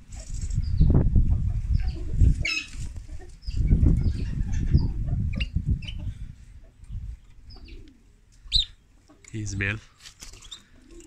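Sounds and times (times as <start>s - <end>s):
finches chirping: 8.5s - 8.8s.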